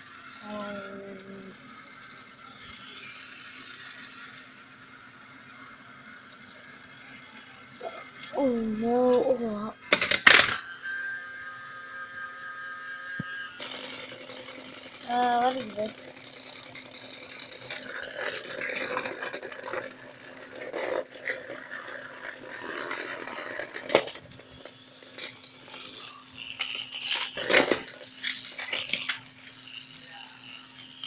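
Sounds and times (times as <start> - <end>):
steady low hum: 0.0 - 31.0
plastic toy trains clattering: 6.5 - 10.8, 13.5 - 31.0.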